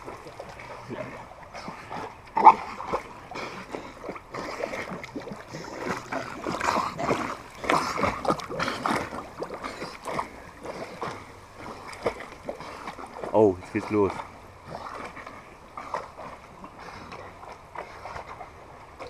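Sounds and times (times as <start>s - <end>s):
dog splashing water: 0.0s - 19.0s.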